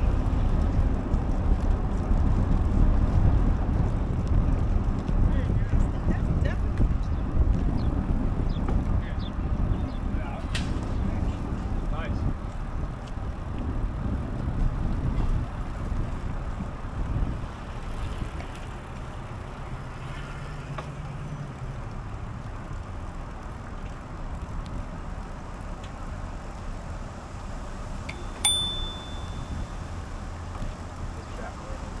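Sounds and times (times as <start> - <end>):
wind and road rumble: 0.0 - 32.0
bicycle bell ringing: 28.1 - 29.9.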